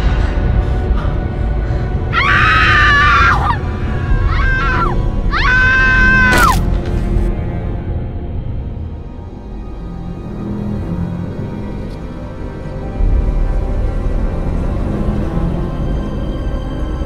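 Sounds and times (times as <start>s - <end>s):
ominous background music: 0.0s - 17.0s
women screaming: 2.1s - 6.6s
sharp crack: 6.2s - 7.4s.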